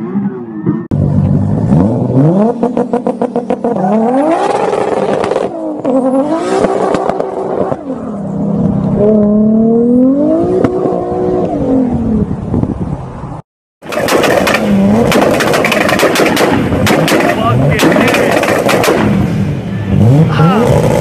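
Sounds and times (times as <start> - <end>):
car engine accelerating: 0.0 - 13.4
exhaust crackling pops: 13.8 - 19.3.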